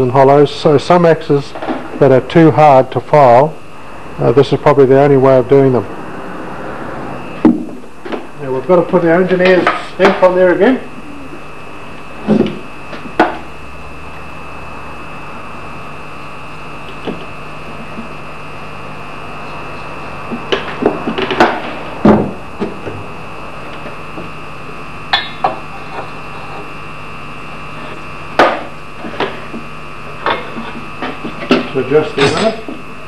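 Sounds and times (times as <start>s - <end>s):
steady hum: 0.0s - 33.0s.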